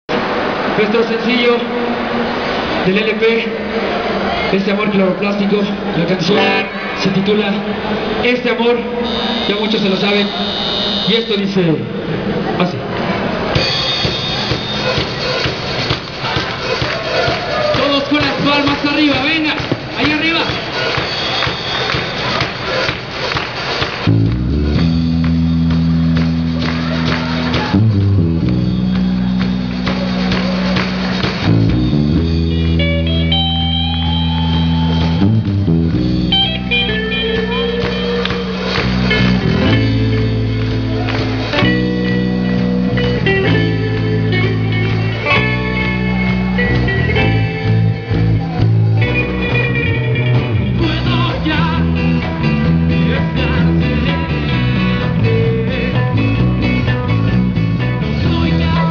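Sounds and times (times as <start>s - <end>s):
melodic guitar line: 3.4s - 11.1s, 24.0s - 58.9s
live rock band playing: 6.2s - 8.2s, 13.4s - 58.9s.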